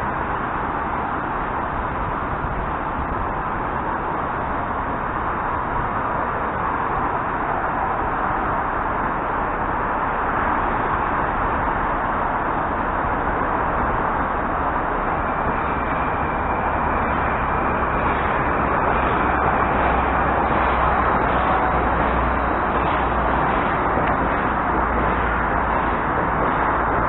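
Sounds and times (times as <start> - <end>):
electric train running: 13.0 - 27.0.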